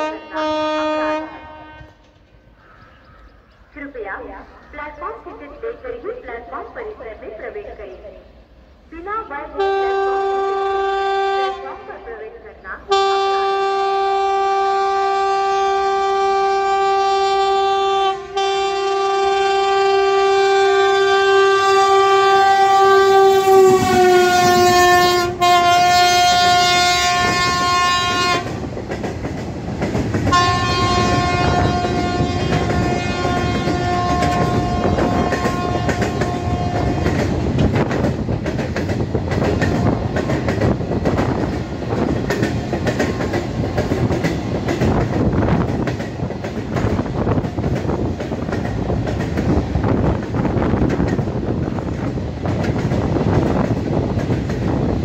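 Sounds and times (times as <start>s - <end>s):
train horn blast: 0.0s - 2.2s, 9.6s - 11.9s, 12.9s - 28.6s, 30.3s - 37.3s
train wheels clattering on rails: 23.5s - 55.0s.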